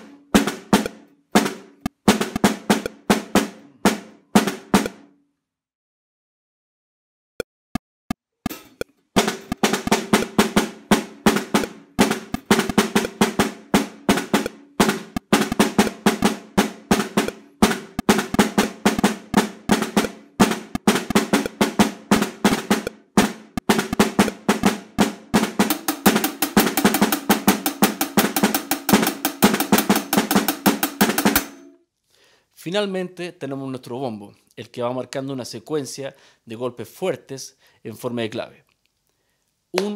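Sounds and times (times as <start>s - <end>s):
snare drum played with sticks: 0.0s - 5.1s, 8.5s - 31.8s
count-in clicks: 0.8s - 1.2s, 4.8s - 5.0s, 8.4s - 10.4s, 11.6s - 13.2s, 14.4s - 16.0s, 19.3s - 21.6s.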